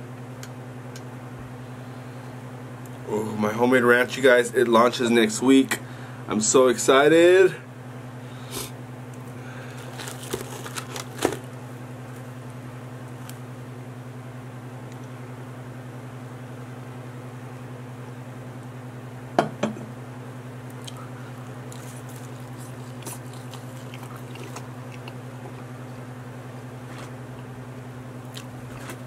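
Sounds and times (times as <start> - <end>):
low electrical hum: 0.0 - 29.0
pizza crust crunching: 9.4 - 13.4, 20.6 - 27.5, 28.1 - 29.0
wet chewing: 9.6 - 11.4, 20.7 - 26.1, 28.2 - 29.0.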